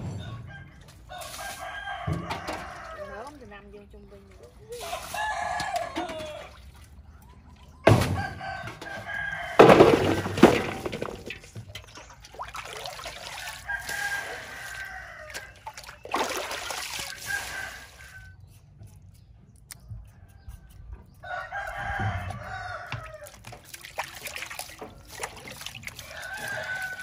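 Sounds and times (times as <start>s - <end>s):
rooster crowing: 0.1s - 3.3s, 4.8s - 6.6s, 8.1s - 10.6s, 13.4s - 15.7s, 17.1s - 18.4s, 21.2s - 23.4s, 26.0s - 27.0s
water splashing: 1.1s - 7.9s, 9.2s - 18.4s, 21.8s - 27.0s.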